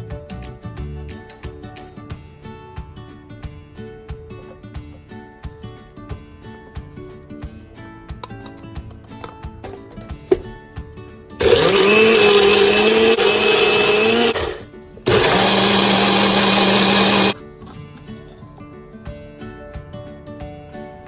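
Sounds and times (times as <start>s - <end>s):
background music: 0.0s - 21.0s
blender motor running: 11.4s - 17.4s.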